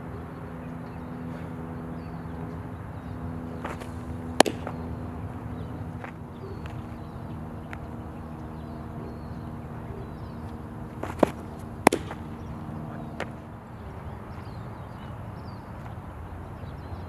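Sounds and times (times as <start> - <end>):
steady low background hum: 0.0 - 17.0
ball popping into leather mitt: 3.6 - 4.8, 11.0 - 12.4.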